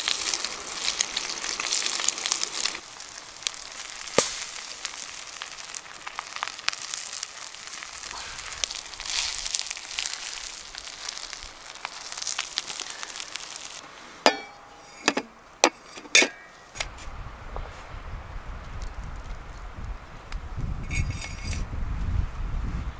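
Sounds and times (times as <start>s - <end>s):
bread sizzling with crackles: 0.0s - 22.2s
ringing metal clinks: 14.3s - 15.0s
low wind rumble: 16.6s - 22.9s.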